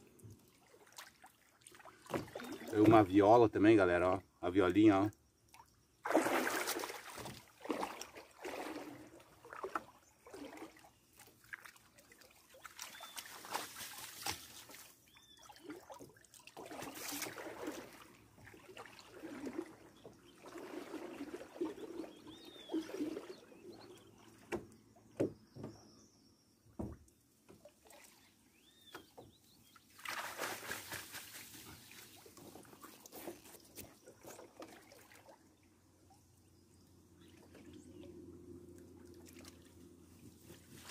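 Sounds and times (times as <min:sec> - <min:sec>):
water sloshing and splashing: 0:00.0 - 0:03.2, 0:05.5 - 0:26.0, 0:26.8 - 0:40.9
legs stirring water: 0:00.1 - 0:03.1, 0:06.1 - 0:24.8.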